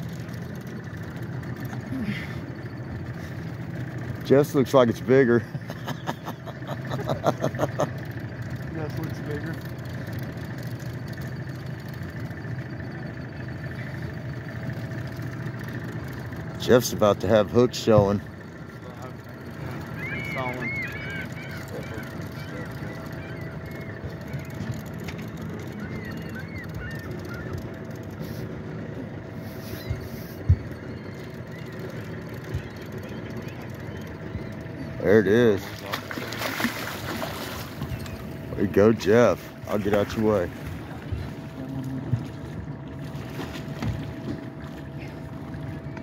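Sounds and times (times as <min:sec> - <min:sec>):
boat motor idling: 0:00.0 - 0:46.0.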